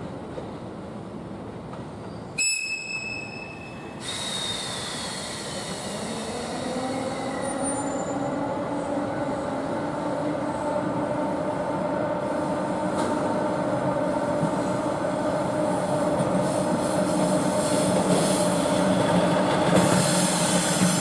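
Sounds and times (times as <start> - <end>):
locomotive air whistle: 2.4 - 5.9.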